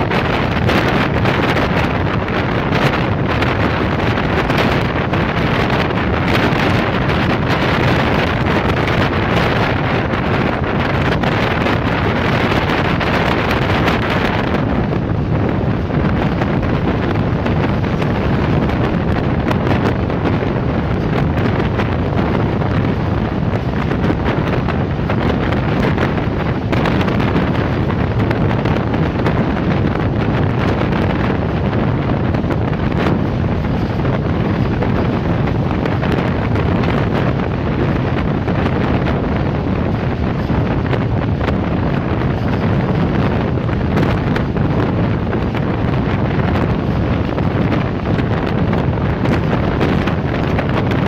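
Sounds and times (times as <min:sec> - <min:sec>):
train running on rails: 0:00.0 - 0:51.0
wind buffeting microphone: 0:00.0 - 0:51.0.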